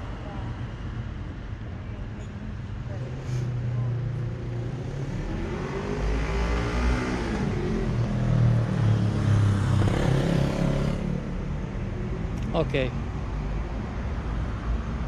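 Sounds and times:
vehicle accelerating past: 4.4s - 11.2s.

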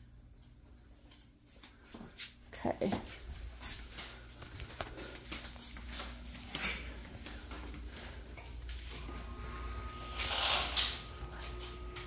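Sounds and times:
faint low hum: 0.0s - 12.0s
light footsteps: 0.4s - 9.4s.

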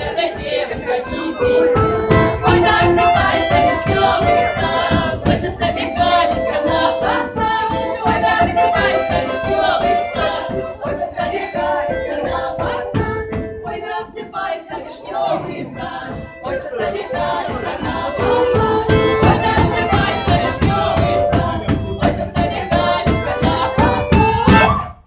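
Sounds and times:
women singing folk song together: 0.0s - 24.8s.

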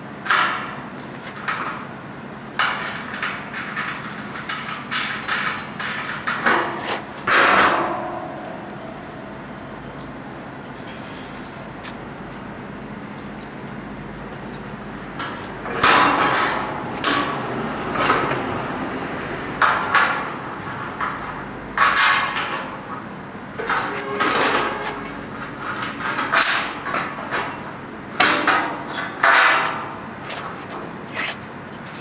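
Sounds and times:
knocks on metal fan shroud: 2.6s - 8.4s, 15.2s - 18.5s, 19.6s - 22.9s, 23.6s - 30.0s.

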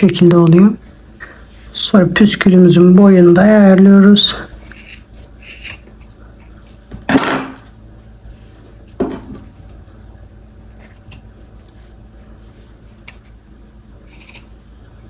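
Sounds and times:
scissors cutting yarn: 14.0s - 14.5s.

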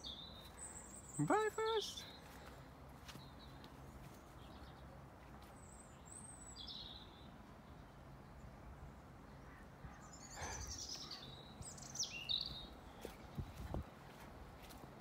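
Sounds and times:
bird chirps: 0.0s - 2.3s, 5.6s - 7.3s, 9.5s - 13.4s.

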